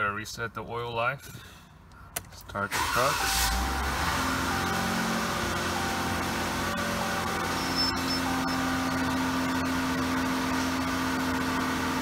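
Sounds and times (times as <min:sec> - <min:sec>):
car engine idling: 0:02.8 - 0:12.0.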